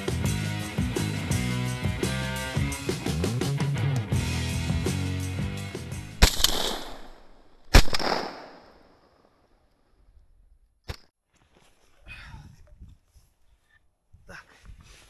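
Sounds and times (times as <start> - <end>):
shotgun shots with echo: 6.2 - 9.0.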